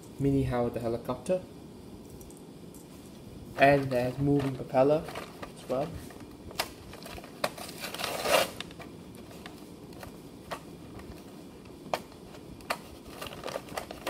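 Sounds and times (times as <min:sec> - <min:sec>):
plastic packaging crinkling: 0:03.5 - 0:14.0.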